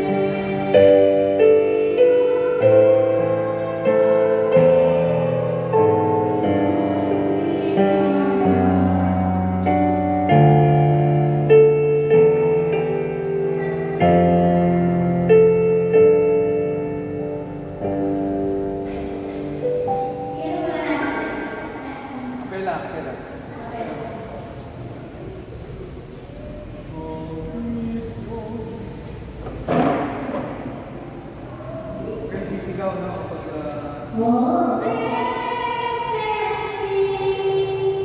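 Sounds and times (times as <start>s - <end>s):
electronic keyboard chords: 0.0s - 21.9s.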